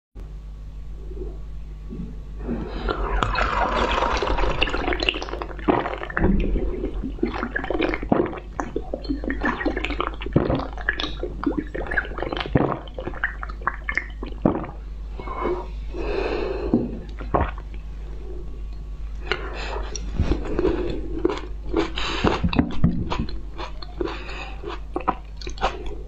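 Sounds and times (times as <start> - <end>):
wet slurping and sucking: 2.4 - 6.2, 6.8 - 14.8
mouth smacks and clicks: 21.2 - 26.0.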